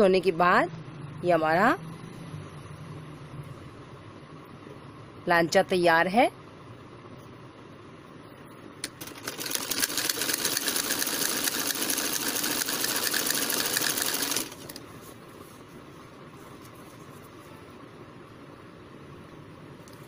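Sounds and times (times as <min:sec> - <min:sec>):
sewing machine stitching: 0:08.8 - 0:14.8.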